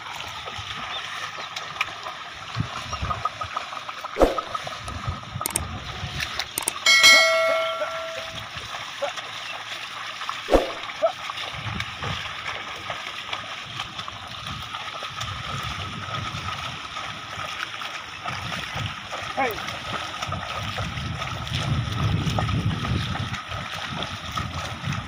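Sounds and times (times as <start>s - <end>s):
hooves thudding in mud: 0.0s - 25.0s
splashing through mud: 0.0s - 25.0s
sharp knock: 4.2s - 4.5s, 10.5s - 10.8s
bright electronic chime: 6.9s - 8.4s.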